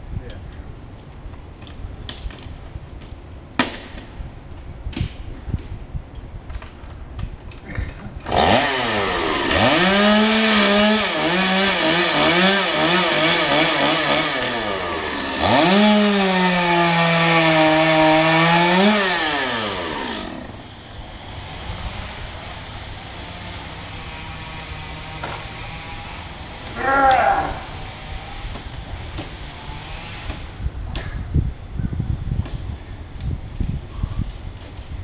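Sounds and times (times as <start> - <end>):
chainsaw cutting wood: 8.2 - 30.7.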